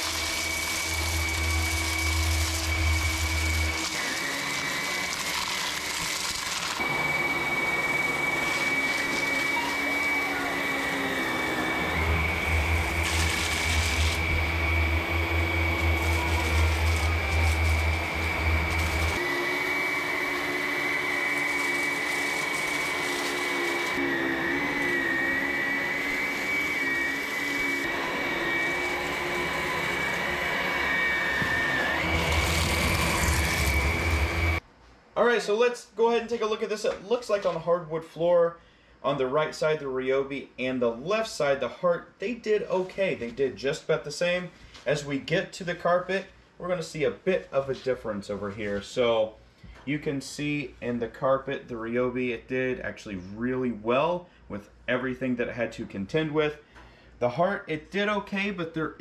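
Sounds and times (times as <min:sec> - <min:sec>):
vacuum motor whine: 0:00.0 - 0:34.6.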